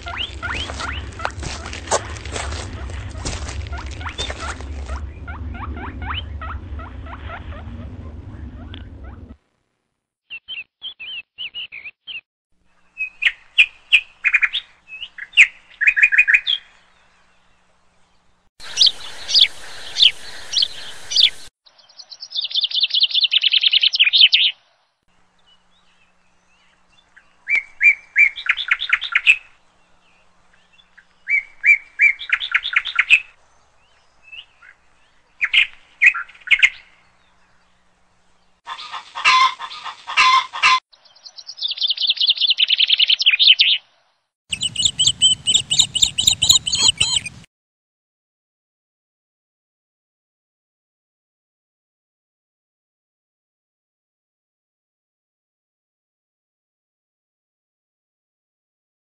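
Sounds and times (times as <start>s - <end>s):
squirrel calling: 0.0s - 6.2s, 18.6s - 21.5s, 44.5s - 47.5s.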